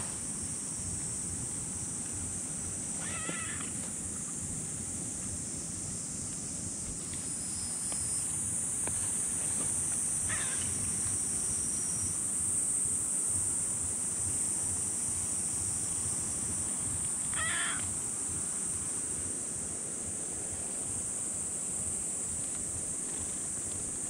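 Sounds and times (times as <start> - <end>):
high-pitched hiss: 0.0 - 24.0
kitten meowing: 3.0 - 3.7, 17.4 - 17.9.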